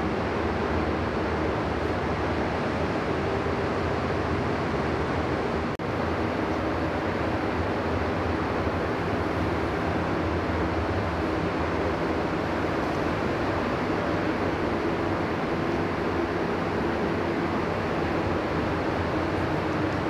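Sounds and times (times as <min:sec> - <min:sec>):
ventilation fans rushing air: 0:00.0 - 0:20.0.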